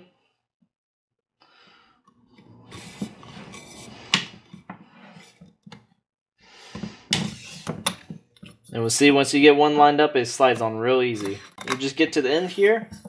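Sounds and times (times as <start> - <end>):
metal shroud scraping: 2.4 - 5.4.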